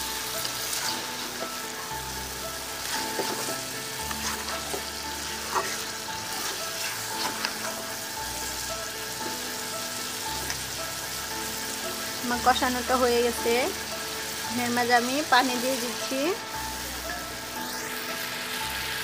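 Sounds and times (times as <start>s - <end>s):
fish sizzling in hot oil: 0.0s - 19.0s
metal spatula scraping pan: 0.5s - 1.9s, 2.8s - 8.0s.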